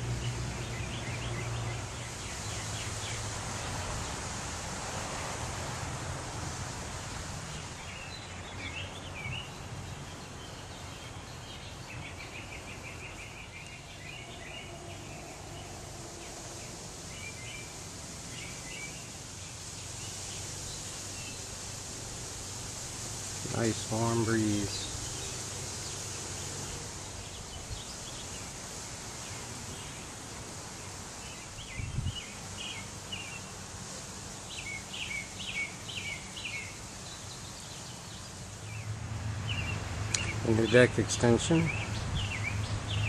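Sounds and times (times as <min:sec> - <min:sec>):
breeze in the trees: 0:00.0 - 0:43.0
songbirds chirping: 0:00.0 - 0:43.0.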